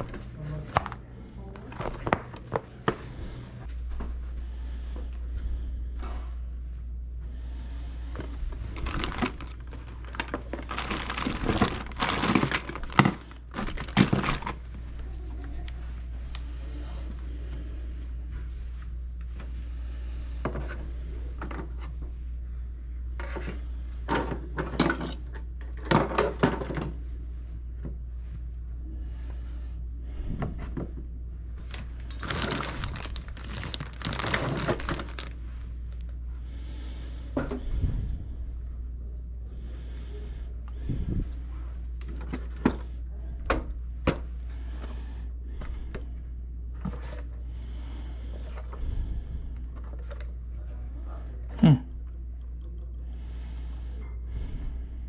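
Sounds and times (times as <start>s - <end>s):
items rustling and crinkling: 0.0s - 6.8s, 8.0s - 22.2s, 30.6s - 36.2s, 40.8s - 43.0s, 46.7s - 51.0s
low steady hum: 0.0s - 55.0s
plastic bag crinkling and rustling: 8.6s - 14.7s, 31.6s - 35.5s.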